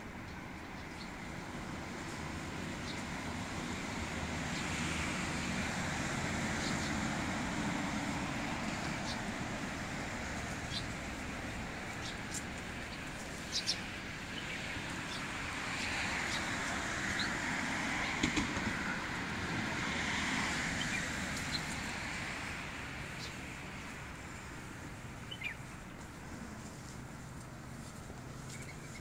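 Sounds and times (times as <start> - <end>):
passing vehicles hum: 0.0 - 29.0.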